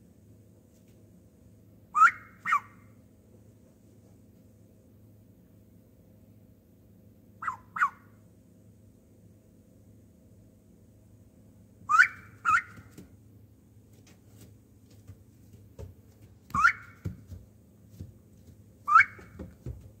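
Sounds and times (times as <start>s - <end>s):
faint hum: 0.0s - 20.0s
duckling whistled peeps: 2.0s - 2.8s, 7.4s - 8.0s, 11.9s - 12.9s, 16.6s - 17.0s, 18.9s - 19.4s.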